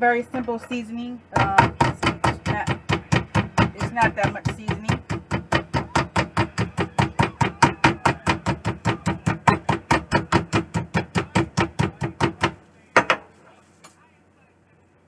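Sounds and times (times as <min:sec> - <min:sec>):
mallet pounding meat on wooden board: 0:01.4 - 0:13.2.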